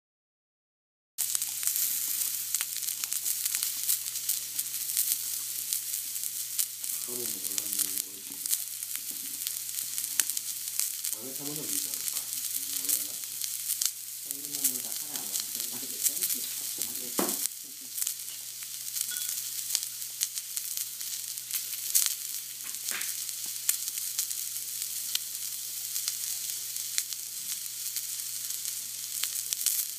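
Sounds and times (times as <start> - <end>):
fat crackling and spitting: 1.2 - 18.5, 19.6 - 24.4
meat sizzling on griddle: 1.2 - 29.9.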